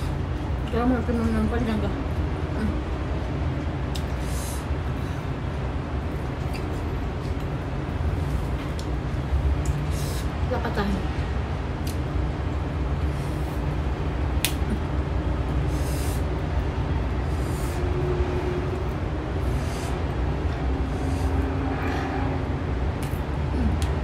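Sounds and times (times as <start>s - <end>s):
steady low rumble: 0.0s - 24.0s
cucumber snapping: 14.4s - 14.7s.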